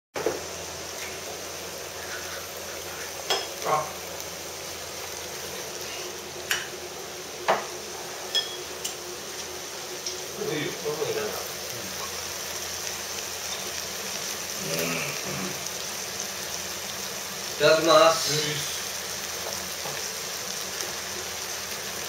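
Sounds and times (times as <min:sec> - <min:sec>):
food sizzling in a pan: 0:00.2 - 0:22.0
chopsticks and tableware clinking: 0:03.2 - 0:03.9, 0:08.3 - 0:09.0.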